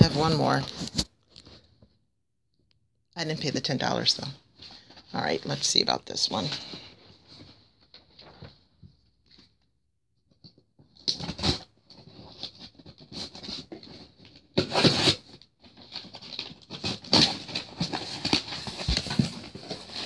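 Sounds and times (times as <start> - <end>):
packaging crinkling and rustling: 11.0 - 20.0.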